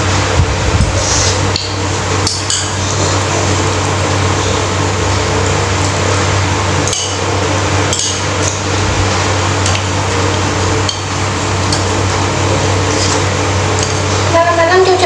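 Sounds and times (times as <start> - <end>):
steady hum and hiss: 0.0 - 15.0
cutlery clinking on ceramic bowl: 7.9 - 8.6.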